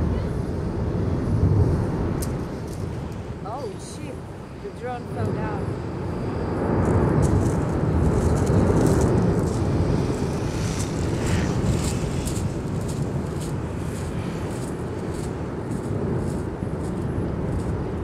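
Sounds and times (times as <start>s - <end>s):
lava rushing rumble: 0.0s - 18.0s
faint crackles: 6.8s - 18.0s.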